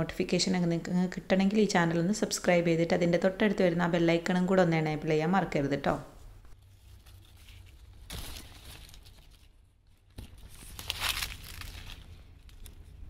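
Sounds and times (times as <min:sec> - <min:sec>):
leaves rustling and crackling: 0:06.6 - 0:13.0.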